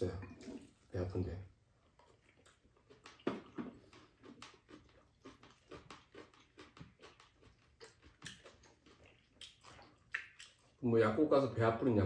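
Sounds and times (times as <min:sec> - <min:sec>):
people chewing and slurping: 0:00.0 - 0:11.3.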